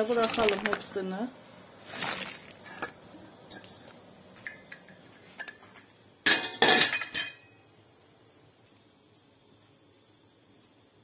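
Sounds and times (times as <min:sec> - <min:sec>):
kitchenware clattering: 0:02.6 - 0:07.5.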